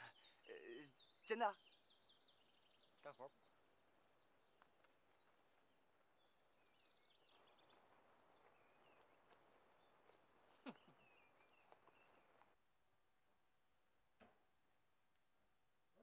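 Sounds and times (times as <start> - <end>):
birds chirping: 0.0 - 12.6.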